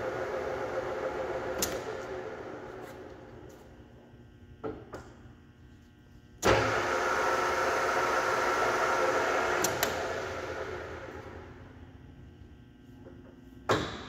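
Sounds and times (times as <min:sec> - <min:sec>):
lathe spindle winding down: 0:00.0 - 0:03.4, 0:06.5 - 0:11.8
lathe spindle starting clunk: 0:06.4 - 0:11.5.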